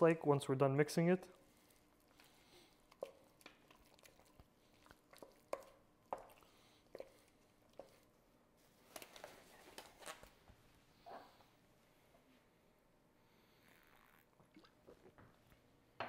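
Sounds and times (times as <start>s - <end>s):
spoon squishing butter: 1.3s - 8.4s
disposable glove rustling: 8.6s - 10.6s.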